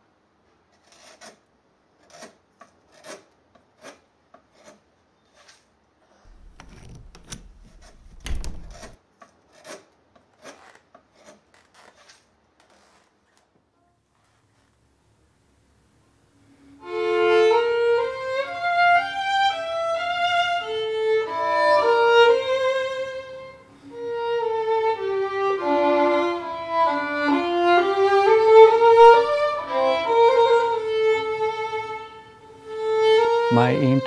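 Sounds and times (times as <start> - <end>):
solo violin melody: 16.5 - 34.0.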